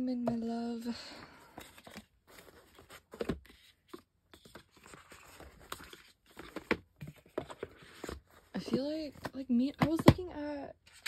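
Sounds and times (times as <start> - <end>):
paper and card rustling: 0.2 - 10.2.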